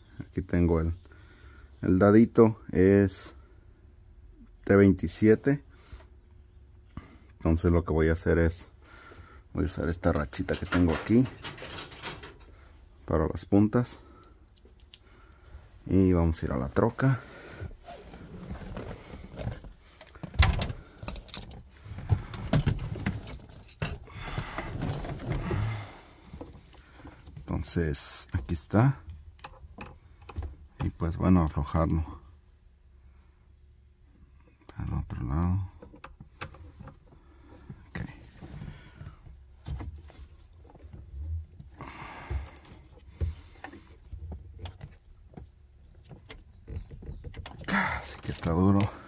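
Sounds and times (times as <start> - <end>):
handling clicks and knocks: 10.0 - 12.6, 18.6 - 25.6, 40.6 - 49.0.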